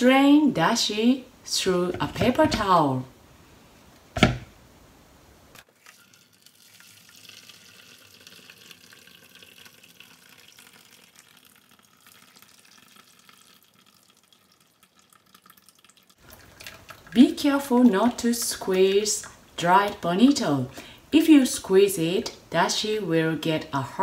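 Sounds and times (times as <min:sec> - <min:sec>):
liquid trickling: 0:05.6 - 0:19.6.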